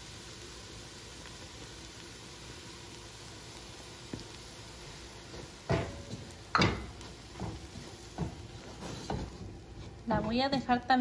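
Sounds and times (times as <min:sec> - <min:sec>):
faint sizzle: 0:00.0 - 0:11.0
spatula knocking and scraping pot: 0:05.7 - 0:10.4.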